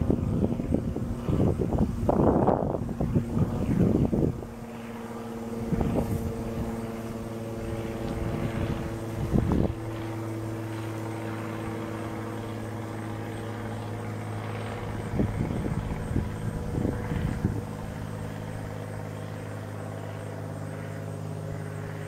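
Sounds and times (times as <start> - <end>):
bee swarm humming: 0.0 - 22.0.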